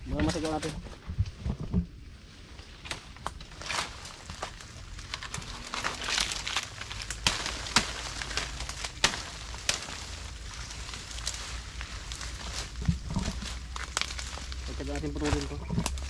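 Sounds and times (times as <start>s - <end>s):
dry bamboo leaves rustling: 0.0s - 16.0s
sharp cracks: 2.8s - 12.3s.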